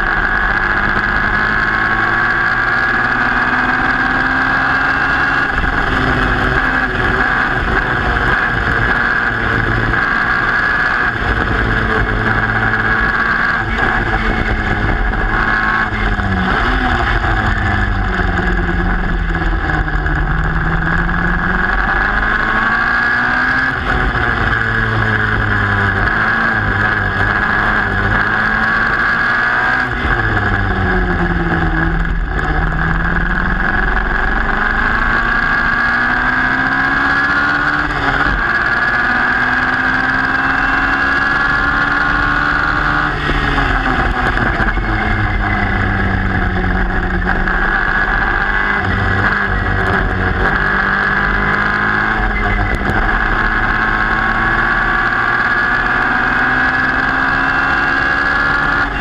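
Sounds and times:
racing car engine revving: 0.0s - 59.0s.

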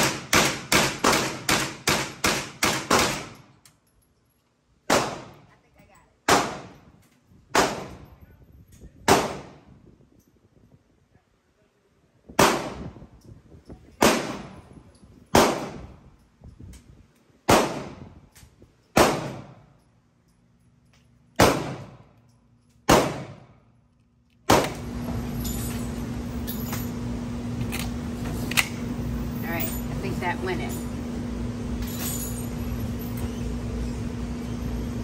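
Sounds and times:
steady low hum: 0.0s - 35.0s
rifle shots with echo: 4.9s - 5.4s, 6.3s - 6.8s, 7.5s - 8.0s, 9.0s - 9.6s, 12.4s - 12.9s, 14.0s - 14.6s, 15.3s - 15.9s, 17.5s - 18.0s, 19.0s - 19.6s, 21.4s - 22.0s, 22.9s - 23.5s.

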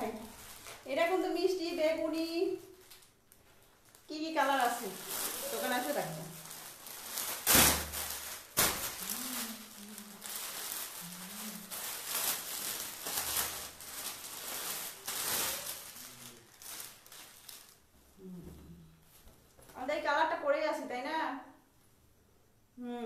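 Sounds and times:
cloth gown rustling and crinkling: 0.0s - 18.2s.

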